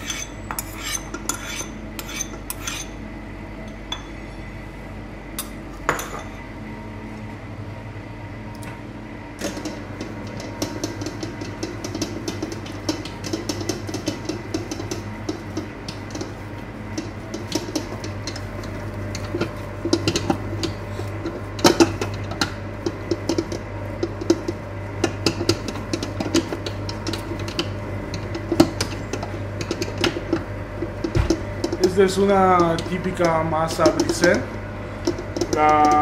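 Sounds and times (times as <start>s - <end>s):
stand mixer motor hum: 8.6s - 36.0s.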